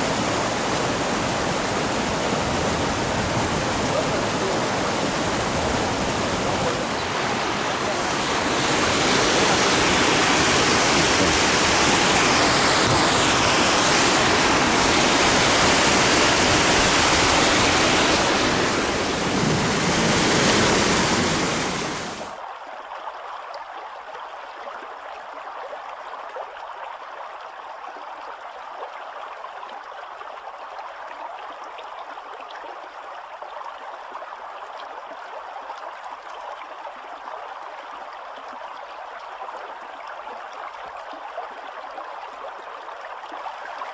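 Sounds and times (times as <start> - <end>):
water rushing over a cascade: 0.0 - 22.4.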